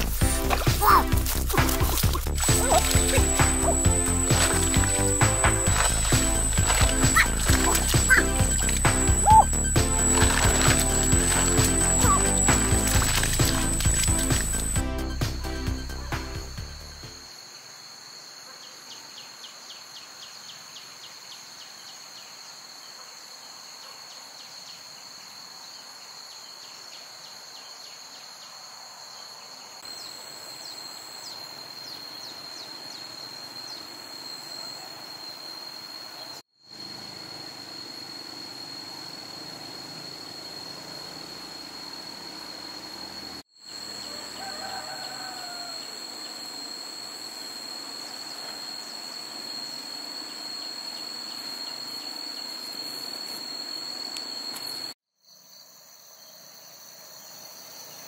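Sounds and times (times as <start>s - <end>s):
quick ticking chirps: 0.0s - 14.8s
insect drone: 0.0s - 58.0s
rooster crowing: 43.8s - 46.4s.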